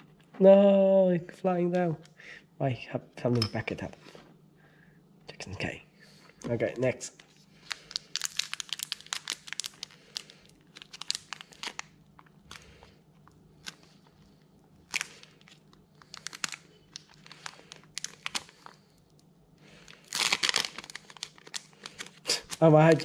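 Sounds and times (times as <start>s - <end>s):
foil wrapper crinkling and tearing: 7.2s - 23.0s.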